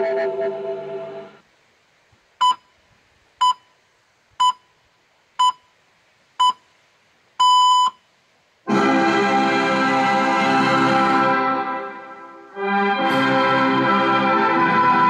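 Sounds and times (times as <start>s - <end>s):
loud music: 0.0s - 1.4s, 8.7s - 15.0s
time signal beeps: 2.4s - 2.7s, 3.4s - 3.7s, 7.4s - 8.0s.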